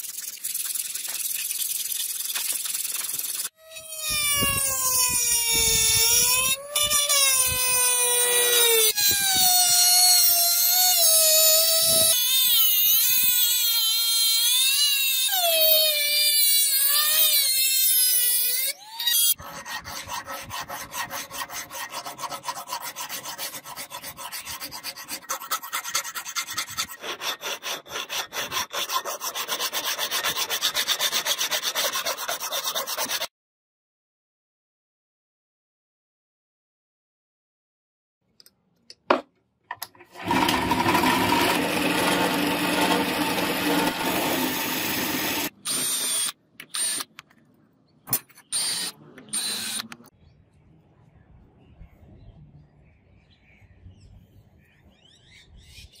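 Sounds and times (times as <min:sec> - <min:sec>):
rotary tool grinding steel: 0:00.0 - 0:33.3, 0:40.0 - 0:47.1, 0:48.4 - 0:50.1
hand file rasping on steel: 0:19.4 - 0:33.3.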